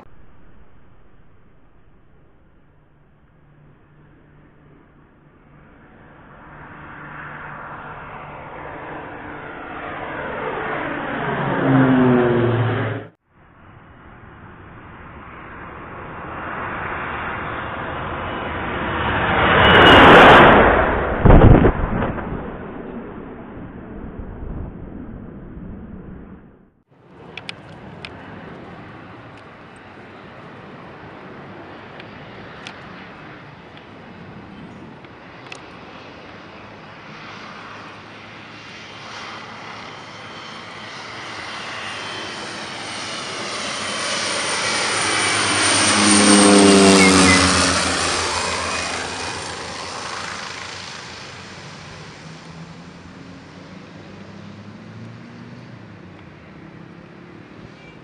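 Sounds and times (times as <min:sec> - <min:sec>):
propeller aircraft passing overhead: 0:00.0 - 0:21.5, 0:22.3 - 0:58.0
faint clicks: 0:27.3 - 0:28.7.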